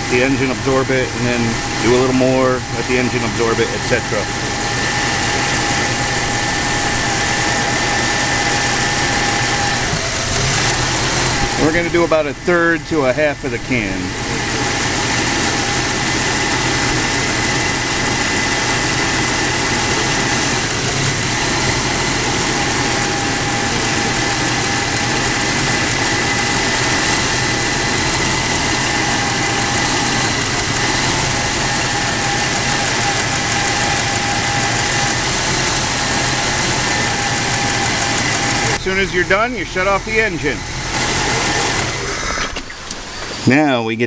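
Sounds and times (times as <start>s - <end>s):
car engine idling: 0.0s - 43.7s.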